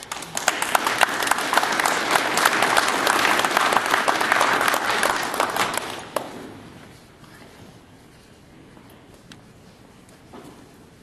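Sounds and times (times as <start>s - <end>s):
audience applause: 0.0s - 6.5s.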